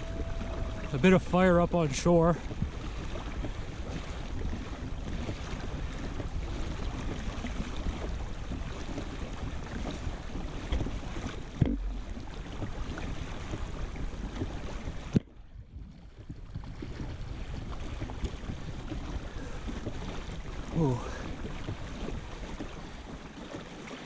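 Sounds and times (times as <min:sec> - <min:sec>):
knock on boat: 0:00.0 - 0:00.9, 0:02.4 - 0:15.3
water splashing against kayak: 0:00.0 - 0:24.0
wind buffeting microphone: 0:00.0 - 0:24.0.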